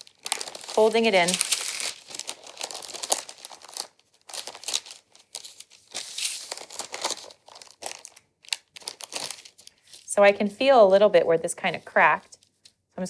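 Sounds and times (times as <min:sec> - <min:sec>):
parchment paper crinkling: 0:00.0 - 0:10.1, 0:10.9 - 0:12.8.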